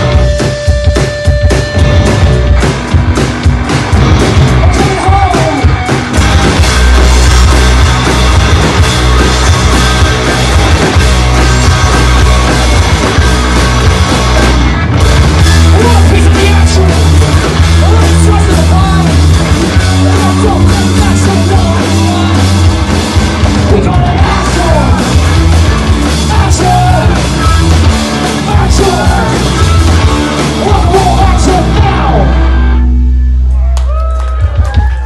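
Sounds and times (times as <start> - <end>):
distorted electric guitars: 0.0 - 35.0
pounding drum kit: 0.0 - 35.0.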